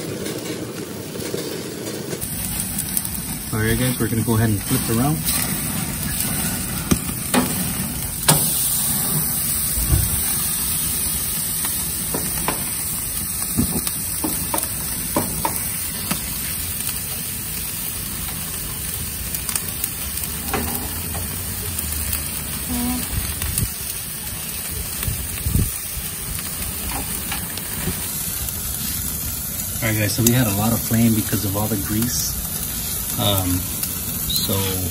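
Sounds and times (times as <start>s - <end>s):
fat flaring into flames: 0.0s - 26.9s
steak sizzling on a grill: 0.0s - 34.9s.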